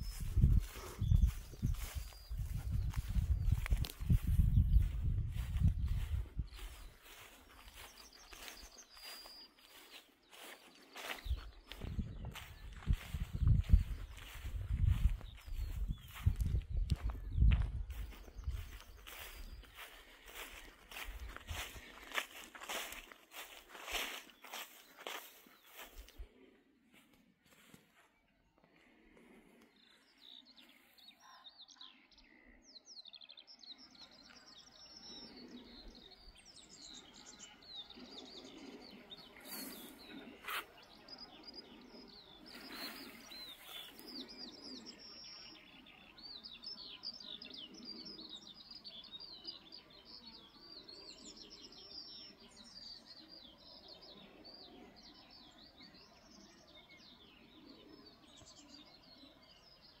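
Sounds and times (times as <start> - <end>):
birds chirping: 0.0 - 60.0.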